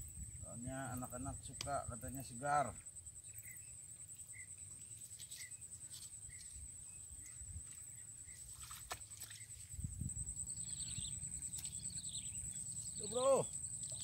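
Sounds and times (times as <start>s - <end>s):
high-pitched insect buzz: 8.3s - 14.0s.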